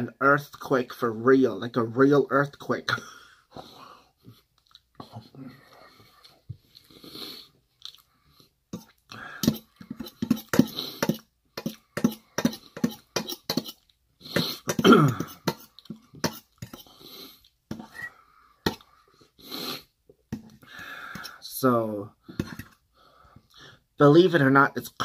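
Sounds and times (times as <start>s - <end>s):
chewing and mouth clicks: 4.6s - 5.0s, 7.8s - 8.1s
throat sound: 8.8s - 16.9s.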